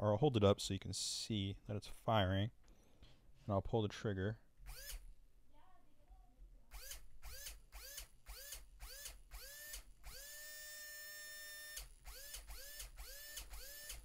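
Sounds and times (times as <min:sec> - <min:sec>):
airsoft gun motor whine: 0:04.7 - 0:05.0, 0:06.7 - 0:14.0.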